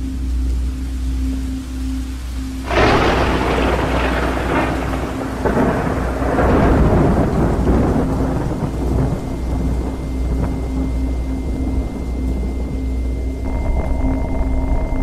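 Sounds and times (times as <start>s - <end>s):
low hum: 0.0s - 15.0s
steady rain: 0.0s - 15.0s
thunder rumbling: 2.6s - 15.0s.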